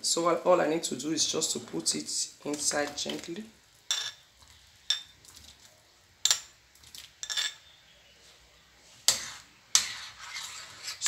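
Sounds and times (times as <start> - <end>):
metal spoon clattering on plate: 7.2 - 7.6.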